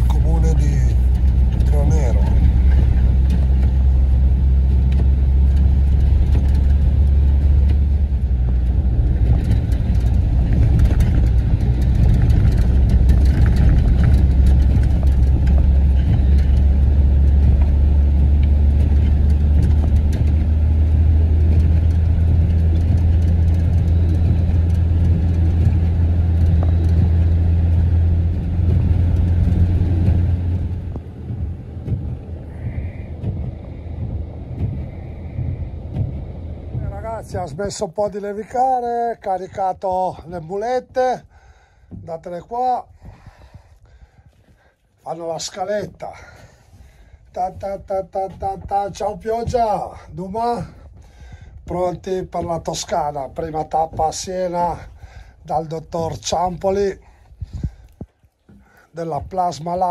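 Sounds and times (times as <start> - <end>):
truck engine and road noise: 0.0 - 59.9.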